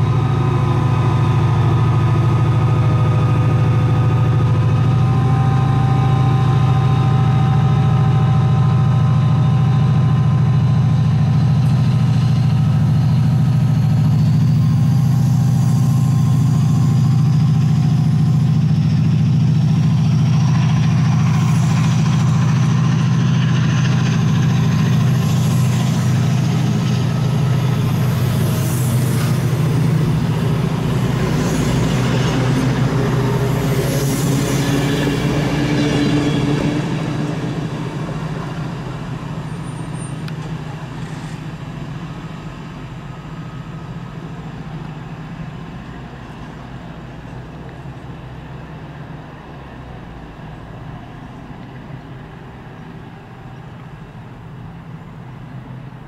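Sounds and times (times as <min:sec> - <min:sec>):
high whine rising in pitch: 0:00.0 - 0:40.9
diesel locomotive engine under load: 0:00.0 - 0:56.0.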